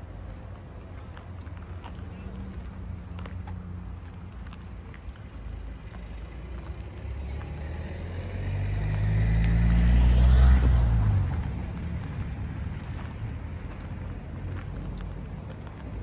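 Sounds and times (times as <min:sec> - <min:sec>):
car driving past: 0:05.5 - 0:15.3.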